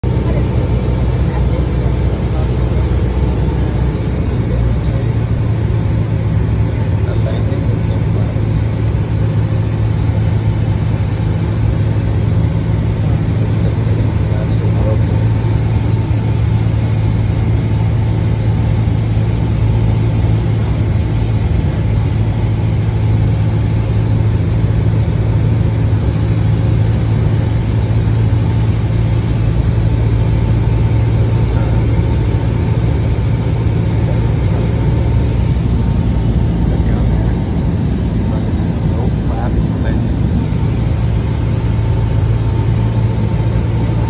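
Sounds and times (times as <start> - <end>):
aircraft engine droning: 0.0 - 44.0.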